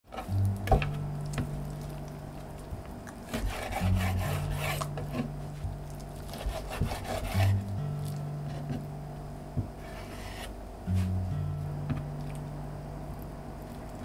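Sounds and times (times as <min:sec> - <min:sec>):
low background bass: 0:00.1 - 0:14.0
chicken rubbed on wooden board: 0:03.3 - 0:05.3, 0:06.3 - 0:07.6.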